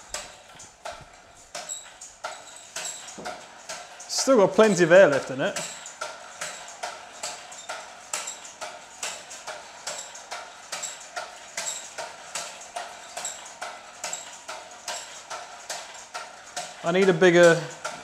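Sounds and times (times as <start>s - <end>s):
air-powered engine clacking: 0.0s - 18.0s.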